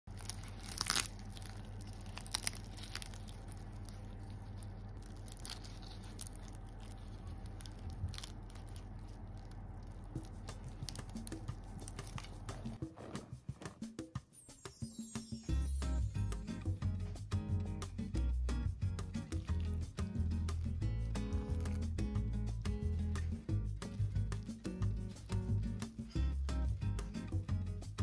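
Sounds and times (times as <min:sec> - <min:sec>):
crispy pancake tearing crunches: 0:00.1 - 0:12.8
steady low hum: 0:00.1 - 0:13.7.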